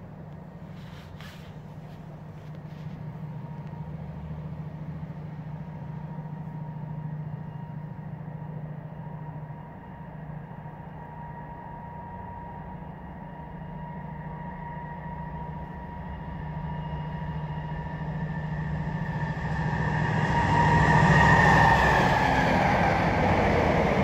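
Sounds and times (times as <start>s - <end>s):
engine droning with high whine: 0.0s - 24.0s.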